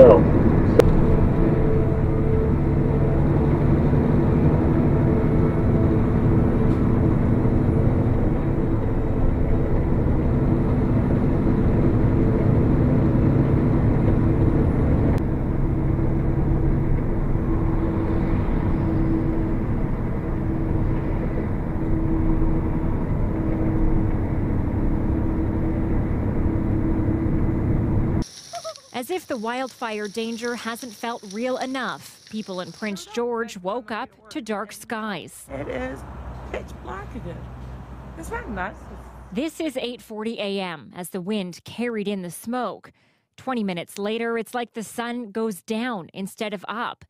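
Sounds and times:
engine drone: 0.0 - 33.1, 34.8 - 40.0.

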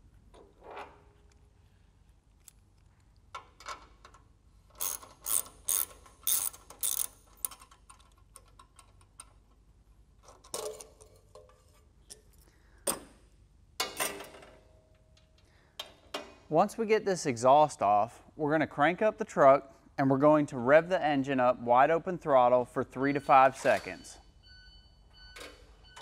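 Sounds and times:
ratchet wrench clicking: 4.7 - 8.1.

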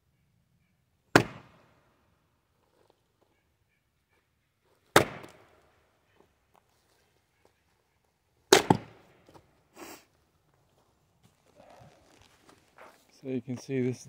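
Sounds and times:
axe striking log: 1.1 - 1.7, 4.9 - 5.5, 8.5 - 9.0
soft scuffing: 10.5 - 13.7.

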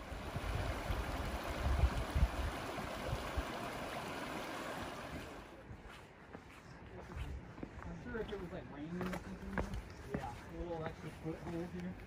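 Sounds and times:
wind buffeting microphone: 0.0 - 4.2
stream water rushing: 0.0 - 5.6.

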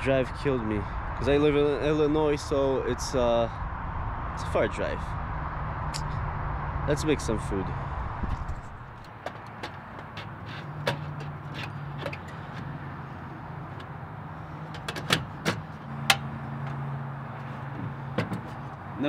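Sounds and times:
low hum: 3.5 - 9.1.

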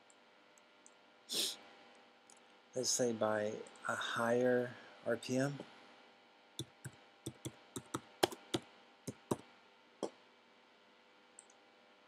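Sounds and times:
keyboard key clicks: 6.6 - 9.4.

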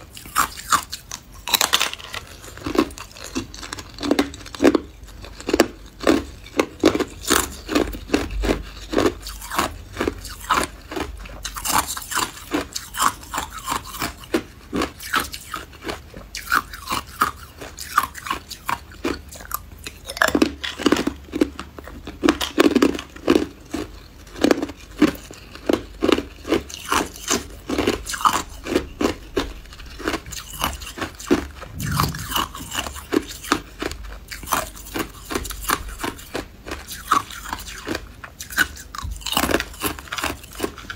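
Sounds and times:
person crunching ice: 0.1 - 18.7, 24.4 - 40.9.

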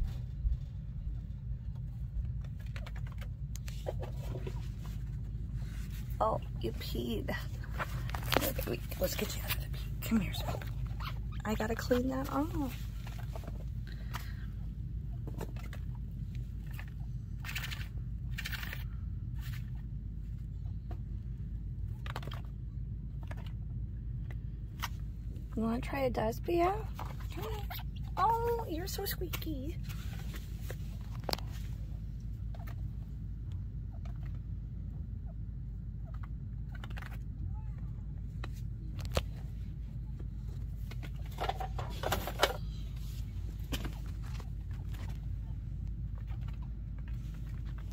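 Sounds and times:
steady low hum: 0.0 - 47.9
chinchilla nibbling crunches: 15.3 - 20.0, 36.0 - 37.8.

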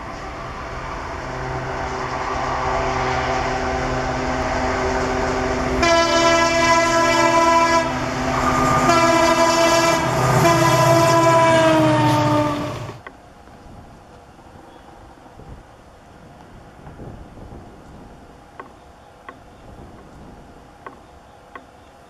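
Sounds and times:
diesel locomotive engine rumbling: 0.0 - 22.0
train horn blasts: 1.2 - 13.0.

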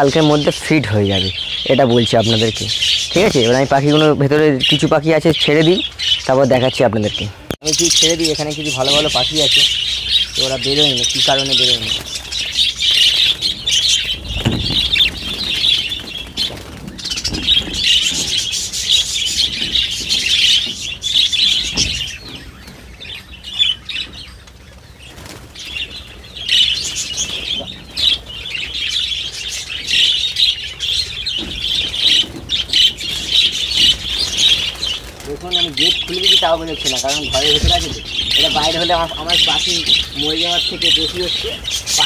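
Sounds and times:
budgerigars chattering: 0.0 - 42.0
wings flapping: 7.0 - 42.0
dull knocks: 14.3 - 15.1.

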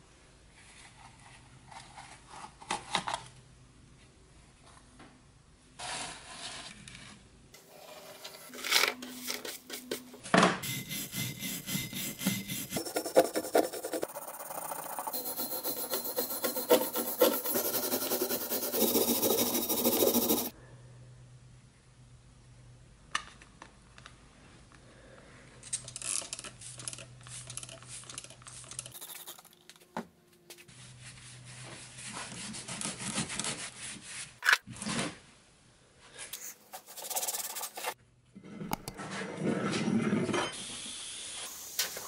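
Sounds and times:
rubbing and handling: 7.8 - 20.5
wire brush scratching metal: 10.6 - 20.5, 28.8 - 29.6.

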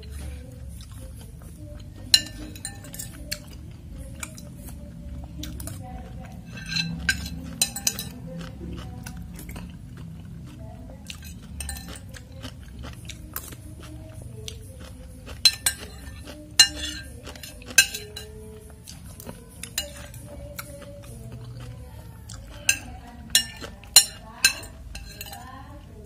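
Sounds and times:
cutlery scraping glass bowl: 2.1 - 3.5, 6.4 - 8.2, 11.1 - 12.1, 15.4 - 18.4, 19.6 - 20.2, 22.6 - 25.4.

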